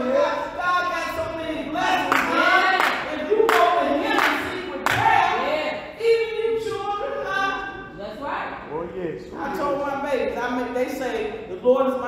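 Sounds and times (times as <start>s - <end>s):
people singing: 0.0s - 7.8s
hand clapping on a beat: 2.0s - 5.2s.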